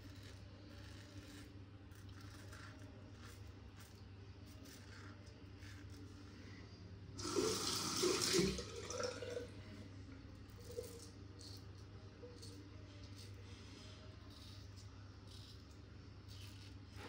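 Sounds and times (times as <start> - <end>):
tap water running into sink: 7.2 - 9.4.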